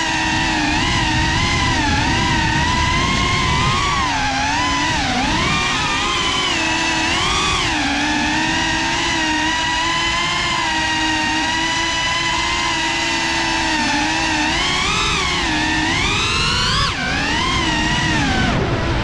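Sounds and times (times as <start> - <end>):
drone motors whining: 0.0 - 19.0.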